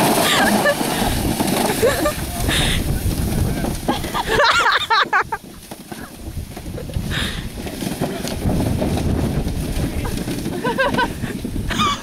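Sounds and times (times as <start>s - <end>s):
low rough rumbling: 0.0s - 12.0s.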